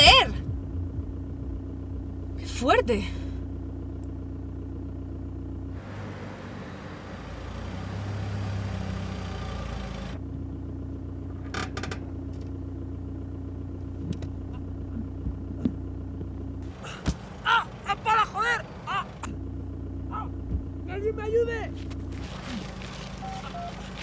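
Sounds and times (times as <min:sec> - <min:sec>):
engine and road hum in car cabin: 0:00.0 - 0:24.0
car passing outside: 0:05.8 - 0:10.2, 0:22.0 - 0:24.0.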